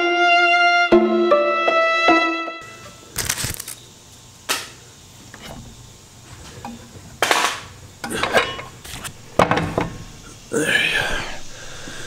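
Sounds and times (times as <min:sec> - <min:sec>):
power tools clunking on wood: 0:04.6 - 0:10.1.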